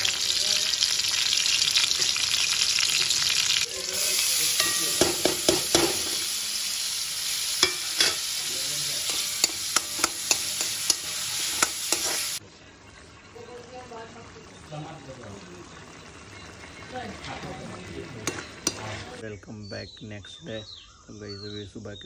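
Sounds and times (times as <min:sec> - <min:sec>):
food sizzling in hot oil: 0:00.0 - 0:19.2
spatula tapping and scraping pan: 0:04.6 - 0:06.1, 0:07.6 - 0:08.2, 0:09.0 - 0:12.3, 0:18.2 - 0:19.0.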